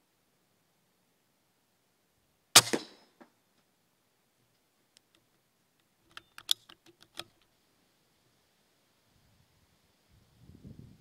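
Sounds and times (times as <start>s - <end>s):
air rifle being cocked: 6.1s - 7.4s.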